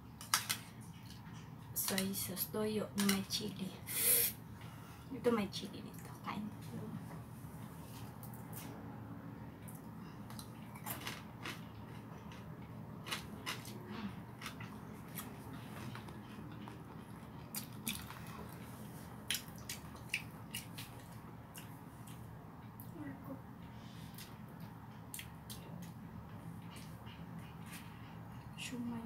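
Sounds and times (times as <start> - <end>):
person chewing and smacking: 9.6 - 22.9, 24.1 - 27.9.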